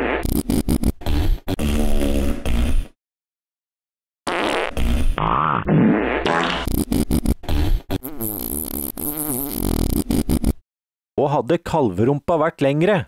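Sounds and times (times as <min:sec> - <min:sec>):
comic fart sound effects: 0:00.0 - 0:03.0, 0:04.3 - 0:10.6.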